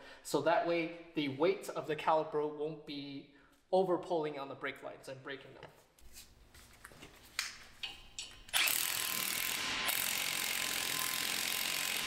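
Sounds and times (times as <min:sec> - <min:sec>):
powered ratchet running: 0:08.5 - 0:12.0.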